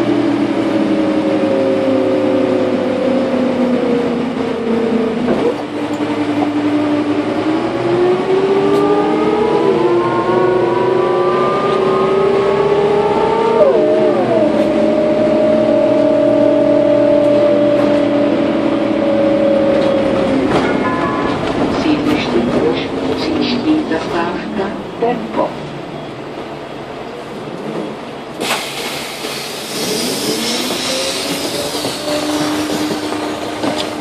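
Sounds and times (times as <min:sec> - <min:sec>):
bus gearbox whine: 0:27.7 - 0:34.0.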